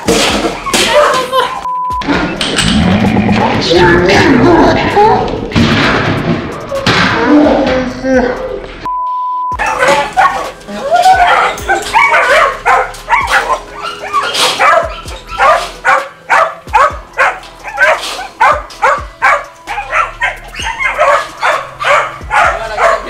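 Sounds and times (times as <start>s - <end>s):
dogs barking: 9.6s - 23.0s.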